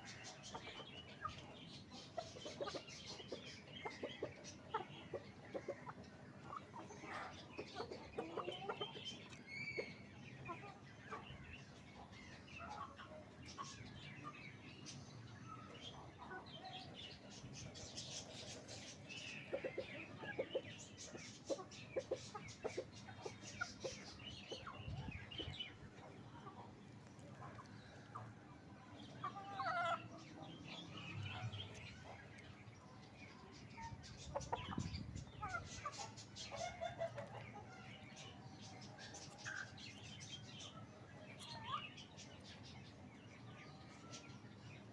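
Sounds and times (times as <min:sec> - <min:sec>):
hen clucking: 0:00.0 - 0:11.3, 0:17.2 - 0:30.4, 0:33.3 - 0:42.4.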